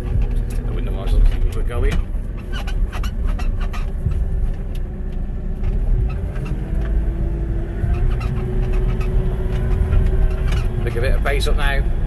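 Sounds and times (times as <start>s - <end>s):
light knocks and rattles: 0.0s - 7.0s
diesel engine running: 0.0s - 12.0s.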